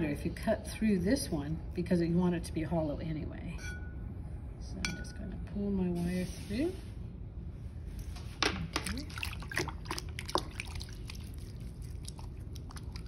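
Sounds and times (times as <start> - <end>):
steady low hum: 0.0 - 13.0
wet clay clicks and drips: 8.8 - 13.0.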